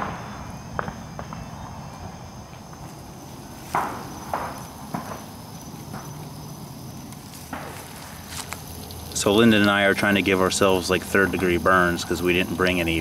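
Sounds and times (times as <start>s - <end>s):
distant gunshots echoing: 0.0s - 2.2s, 3.7s - 6.2s
insects chirring: 0.0s - 13.0s.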